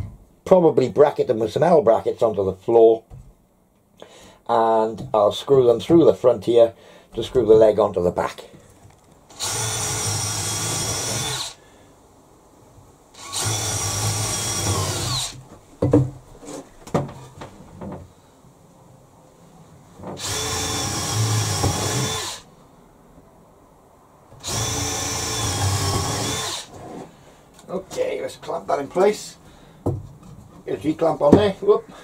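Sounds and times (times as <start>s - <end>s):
drill driving screws: 9.3s - 11.6s, 13.2s - 15.4s, 20.2s - 22.5s, 24.4s - 26.7s
wood knocking: 15.4s - 18.1s, 29.8s - 30.3s, 31.3s - 31.6s.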